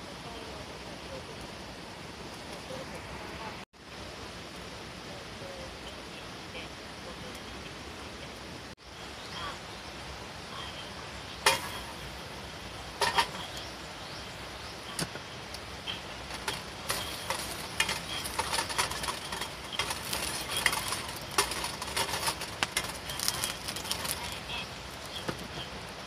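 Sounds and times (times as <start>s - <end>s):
garlic sizzling in hot oil: 11.0s - 26.0s
tongs stirring garlic: 16.0s - 25.6s.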